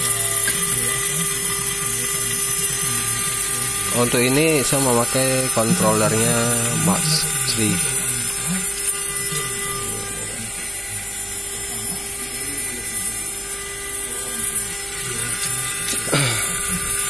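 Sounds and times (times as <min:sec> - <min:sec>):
constant hum: 0:00.0 - 0:17.0
router spindle milling metal: 0:00.0 - 0:17.0.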